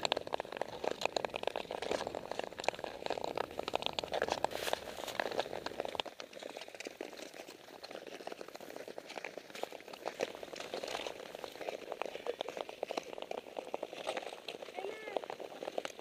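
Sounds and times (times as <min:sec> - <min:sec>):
ice skates scraping ice: 0:00.0 - 0:16.0.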